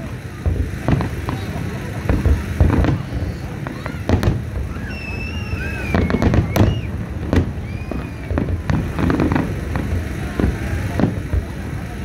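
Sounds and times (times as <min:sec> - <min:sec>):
fireworks bursting with sharp bangs: 0:00.0 - 0:12.0
high wavering whistling: 0:04.7 - 0:08.4.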